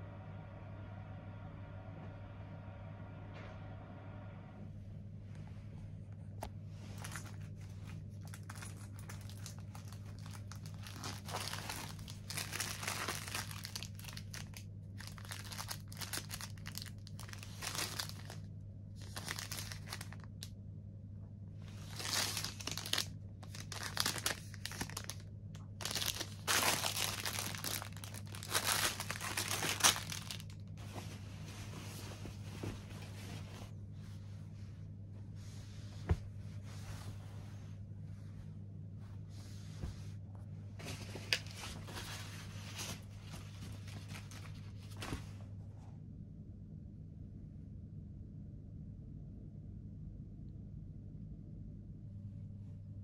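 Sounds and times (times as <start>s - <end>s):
steady low hum: 0.0s - 53.0s
mesh bag and packets crinkling: 6.8s - 20.5s, 21.7s - 33.5s, 40.8s - 45.3s.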